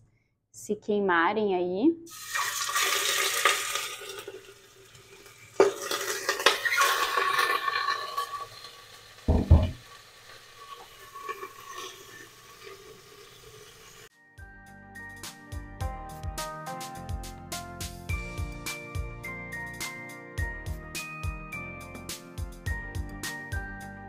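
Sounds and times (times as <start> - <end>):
meat sizzling in hot oil: 2.1 - 14.1
low knock: 9.3 - 9.8.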